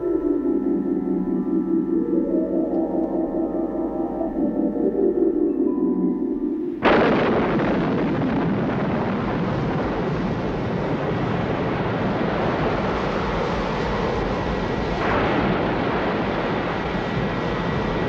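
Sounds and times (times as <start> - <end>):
wind and surf roar: 6.8 - 18.0.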